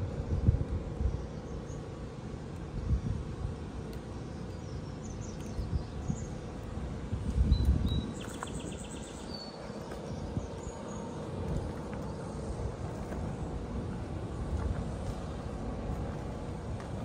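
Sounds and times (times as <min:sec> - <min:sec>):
faint steady hum: 0:00.0 - 0:17.0
wind rumble on microphone: 0:00.0 - 0:17.0
small birds chirping: 0:04.0 - 0:13.5.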